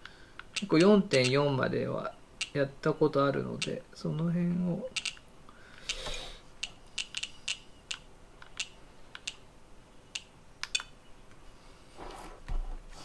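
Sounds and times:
charger buttons clicking: 0.0s - 1.4s.

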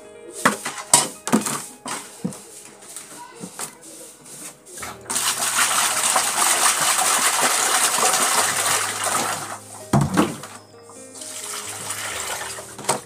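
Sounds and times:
water pouring into plastic basin: 4.8s - 13.0s.

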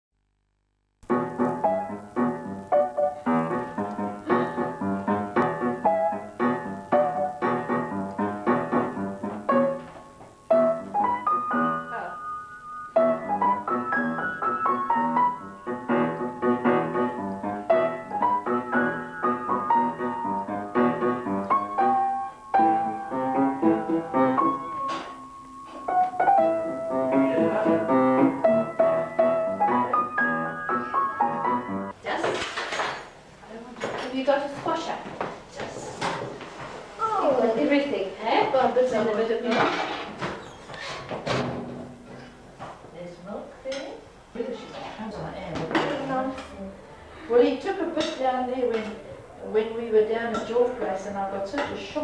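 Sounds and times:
piano tune: 1.0s - 32.0s.

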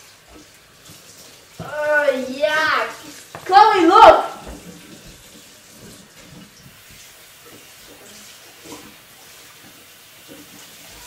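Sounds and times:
water running from a tap: 0.0s - 11.0s.

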